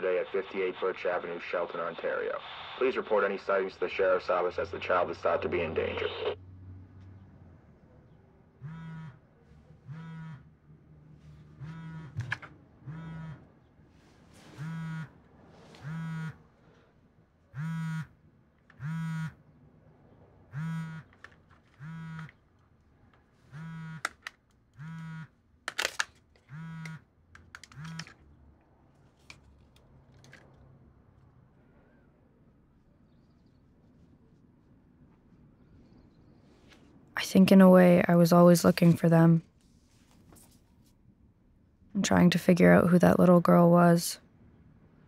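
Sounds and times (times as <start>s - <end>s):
mobile phone vibrating: 8.6s - 9.2s, 9.9s - 10.5s, 11.5s - 13.4s, 14.5s - 15.2s, 15.8s - 16.4s, 17.6s - 18.1s, 18.8s - 19.4s, 20.5s - 21.1s, 21.8s - 22.3s, 23.5s - 24.2s, 24.8s - 25.3s, 26.5s - 27.0s.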